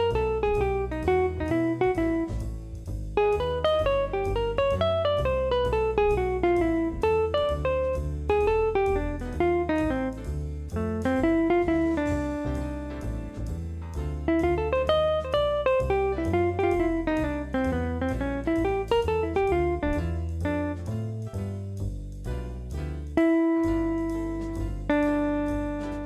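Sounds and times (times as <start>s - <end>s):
plucked guitar melody: 0.0s - 2.5s, 3.2s - 20.9s, 23.2s - 26.0s
bass line: 0.0s - 26.0s.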